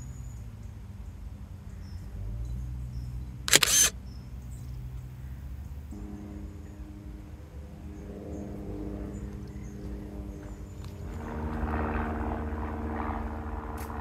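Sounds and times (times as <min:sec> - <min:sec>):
camera shutter click: 0:03.5 - 0:03.9.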